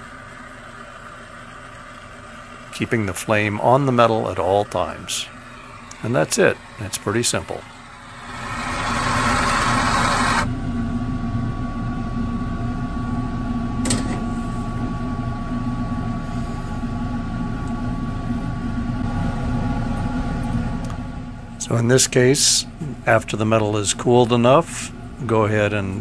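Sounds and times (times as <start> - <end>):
low mechanical hum with whine: 0.0 - 26.0
gas torch flame hissing: 5.8 - 10.5.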